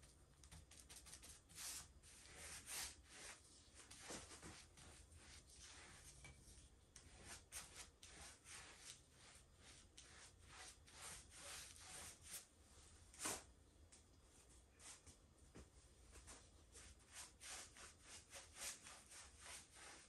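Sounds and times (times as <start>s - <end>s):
paintbrush swishes: 0.9s - 6.2s, 7.0s - 12.5s, 16.1s - 20.0s.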